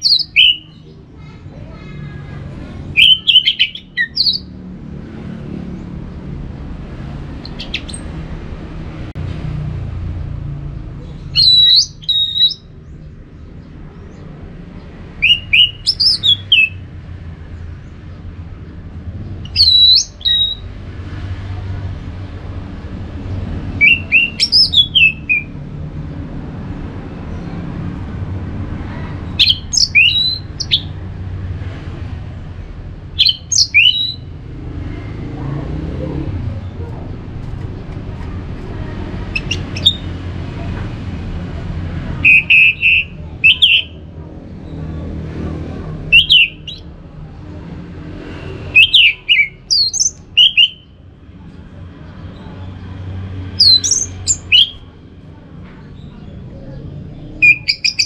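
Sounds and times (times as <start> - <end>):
thrush singing whistled phrases: 0.0 - 0.8, 2.9 - 4.5, 11.3 - 12.7, 15.2 - 16.8, 19.4 - 20.6, 23.8 - 25.6, 29.4 - 30.9, 33.2 - 34.3, 39.3 - 40.2, 42.2 - 44.0, 46.1 - 46.9, 48.4 - 51.0, 53.6 - 54.8, 57.4 - 58.0.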